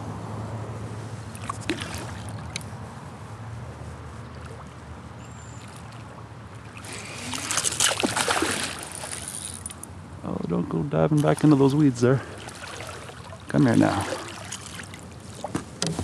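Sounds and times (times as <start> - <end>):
fish thrashing and splashing: 1.4 - 2.6, 5.6 - 9.8, 12.2 - 15.5.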